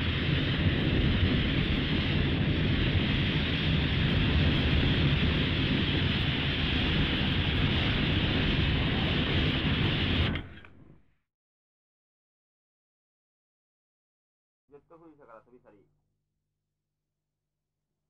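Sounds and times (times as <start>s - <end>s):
steady rushing noise: 0.0s - 10.9s
deep continuous rumble: 0.0s - 11.0s.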